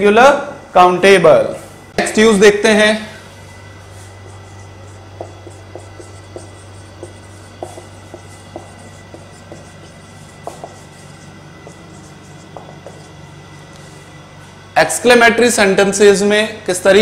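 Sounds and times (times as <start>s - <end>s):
marker tapping on whiteboard: 5.2s - 13.2s.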